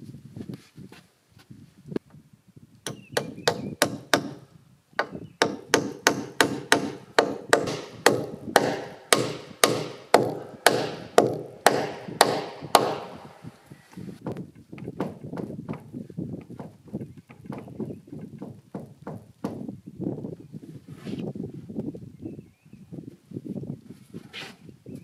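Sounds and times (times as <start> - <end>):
hammer striking wood: 2.9 - 4.4, 5.0 - 13.4, 14.8 - 15.9.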